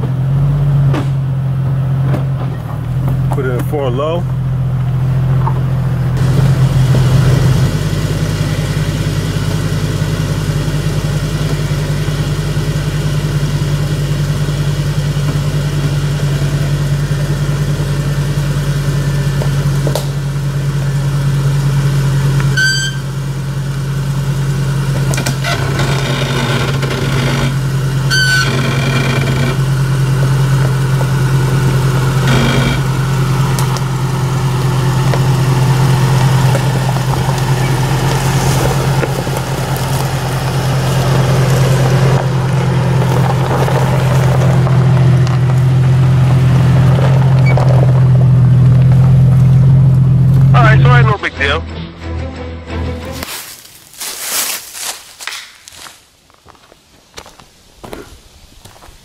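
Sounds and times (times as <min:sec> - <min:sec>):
tires knocking on stone: 0:00.0 - 0:50.5
car engine running slowly: 0:00.0 - 0:51.6, 0:52.9 - 0:59.0
short high squeals: 0:22.4 - 0:23.3, 0:25.3 - 0:29.8, 0:32.2 - 0:33.0.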